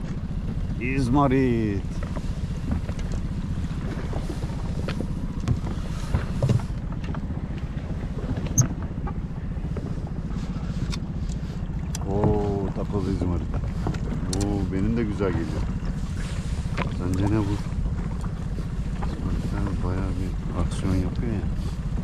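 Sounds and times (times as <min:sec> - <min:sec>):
outboard motor idling: 0:00.0 - 0:22.0
clicks and knocks of boat catch: 0:01.9 - 0:04.0, 0:04.8 - 0:09.2, 0:10.8 - 0:12.4, 0:13.5 - 0:14.6.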